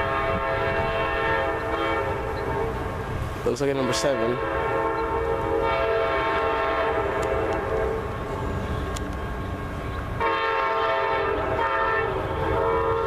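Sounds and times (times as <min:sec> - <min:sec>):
locomotive air horn blasts: 0:00.0 - 0:03.0, 0:03.8 - 0:08.1, 0:10.2 - 0:13.0
low rumble of oncoming train: 0:00.0 - 0:13.0.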